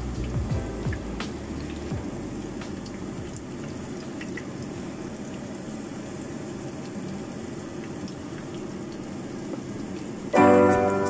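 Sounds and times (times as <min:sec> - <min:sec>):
oil popping: 0:00.0 - 0:05.8.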